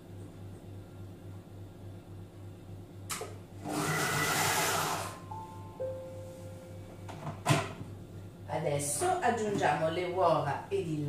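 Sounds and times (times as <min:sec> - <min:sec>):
food processor motor and blade: 0:03.6 - 0:05.2.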